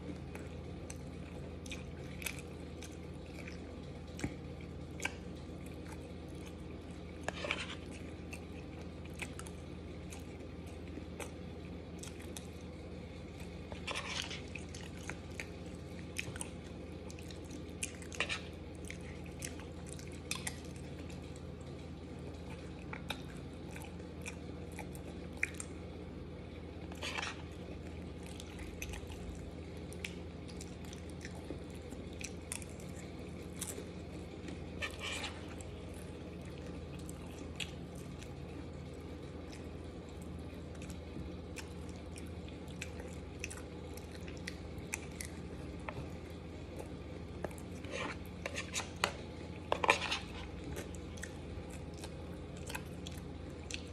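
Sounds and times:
wet chewing with mouth smacks: 0:00.0 - 0:12.7, 0:22.4 - 0:25.8, 0:26.9 - 0:53.9
steady low hum: 0:00.0 - 0:53.9.

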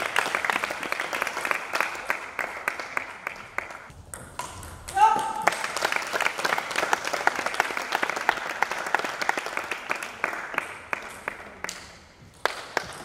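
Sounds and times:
small group applauding: 0:00.0 - 0:03.9, 0:05.0 - 0:13.0.

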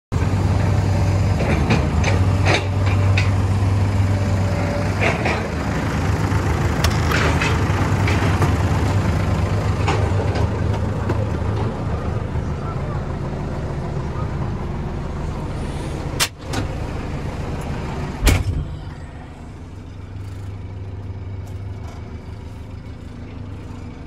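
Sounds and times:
diesel engine idling: 0:00.1 - 0:24.0
sharp clanks and knocks: 0:01.4 - 0:03.5, 0:05.0 - 0:05.6, 0:06.8 - 0:08.7, 0:09.8 - 0:11.8.

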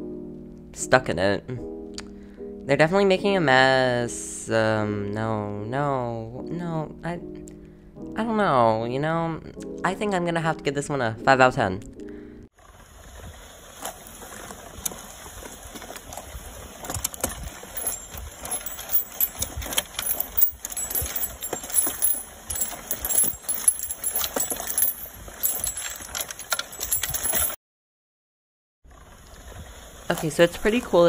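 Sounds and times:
roller tool rolling on concrete: 0:15.7 - 0:27.6
metal pieces clicking and rattling: 0:17.8 - 0:27.6.

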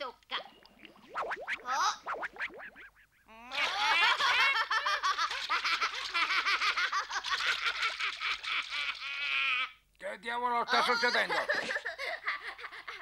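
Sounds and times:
cartoon boy laughing: 0:03.3 - 0:09.7, 0:10.7 - 0:13.0.

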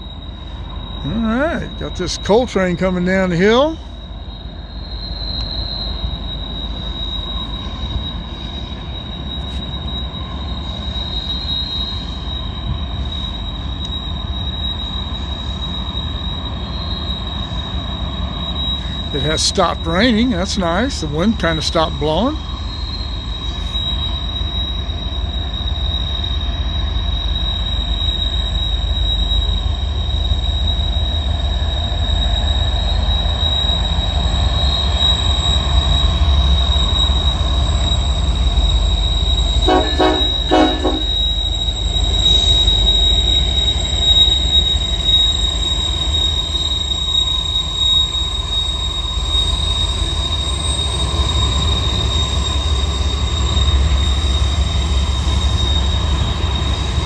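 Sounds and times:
high-pitched wheel squeal: 0:00.0 - 0:57.0
train rumbling past: 0:00.0 - 0:57.0
two-part train horn blast: 0:39.6 - 0:41.3.

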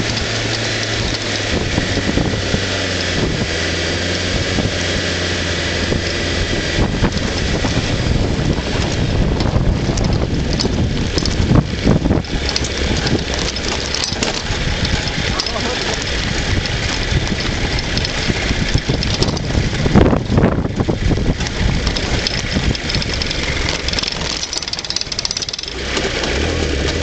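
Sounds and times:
vehicle body knocking over ruts: 0:00.0 - 0:27.0
vehicle engine running: 0:00.0 - 0:27.0
wind on microphone: 0:00.0 - 0:27.0.

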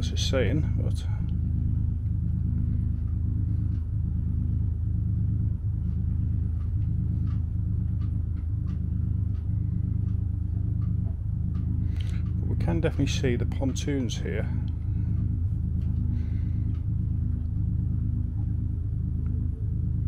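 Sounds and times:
low mechanical hum: 0:00.0 - 0:20.0
faint ticks: 0:05.8 - 0:12.4.

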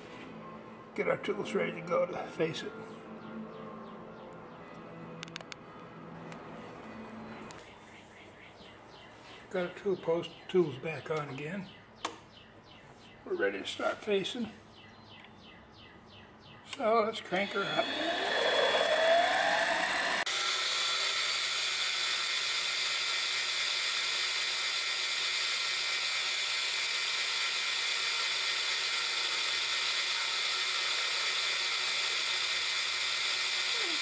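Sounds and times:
lathe motor whine: 0:17.3 - 0:34.0.

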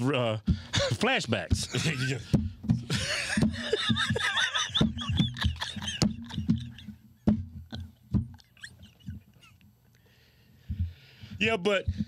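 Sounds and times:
men laughing hard: 0:01.6 - 0:09.6.

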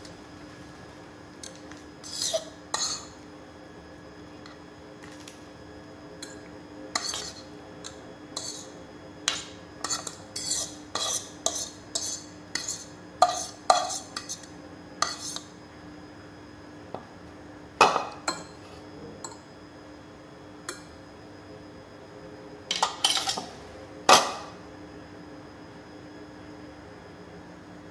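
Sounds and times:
faint steady hum: 0:00.0 - 0:27.9
utensil scraping a bowl: 0:01.4 - 0:03.2, 0:06.2 - 0:15.5.

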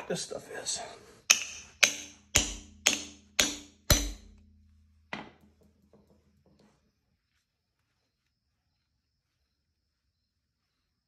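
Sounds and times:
hammer striking a metal bolt: 0:01.3 - 0:04.5.

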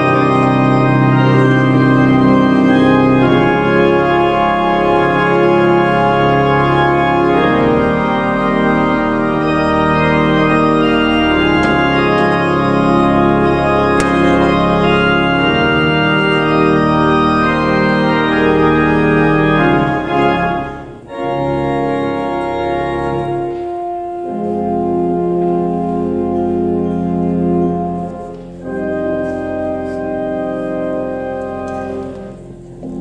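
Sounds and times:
pipe organ chords: 0:00.0 - 0:33.0.

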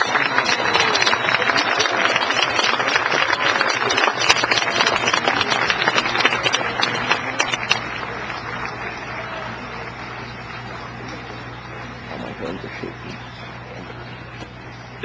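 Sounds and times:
audience applauding: 0:00.0 - 0:15.0
low steady hum: 0:00.0 - 0:15.0.

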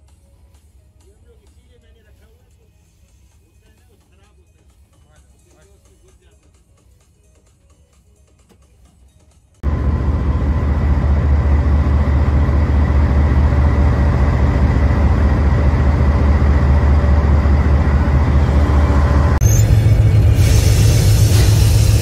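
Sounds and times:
locomotive engine drone: 0:09.6 - 0:22.0.

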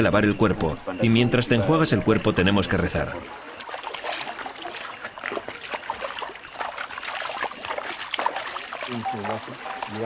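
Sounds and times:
river water splashing: 0:02.6 - 0:10.0.

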